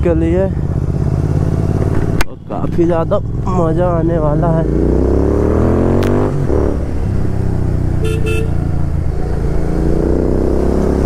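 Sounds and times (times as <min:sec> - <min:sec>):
motorcycle engine accelerating: 0:00.0 - 0:11.0
horn toots: 0:08.0 - 0:08.7.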